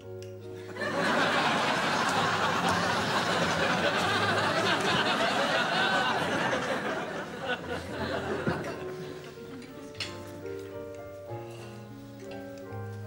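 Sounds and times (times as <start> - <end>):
studio audience laughing: 0.6 - 9.5.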